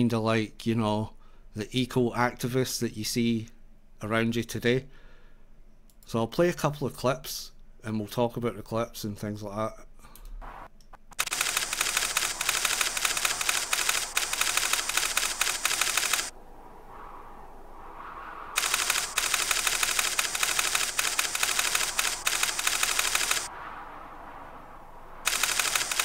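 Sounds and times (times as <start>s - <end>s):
typewriter-like clatter: 11.1s - 16.3s, 18.6s - 23.5s, 25.3s - 26.0s.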